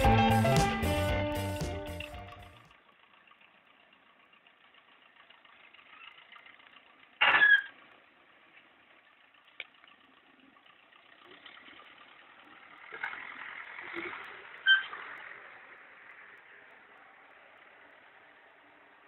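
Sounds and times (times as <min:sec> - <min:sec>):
background music: 0:00.0 - 0:02.6
faint engine running: 0:00.0 - 0:19.0.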